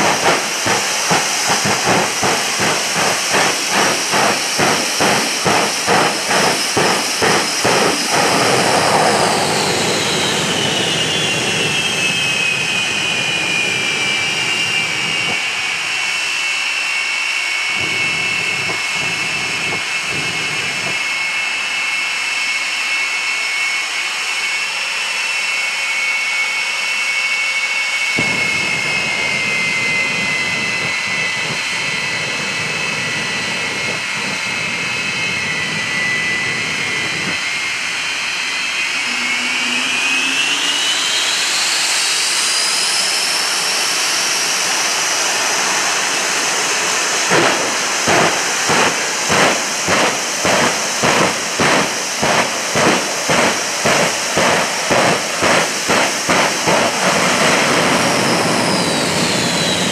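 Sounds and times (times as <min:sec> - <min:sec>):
jet engines roaring with whine: 0:00.0 - 0:59.9.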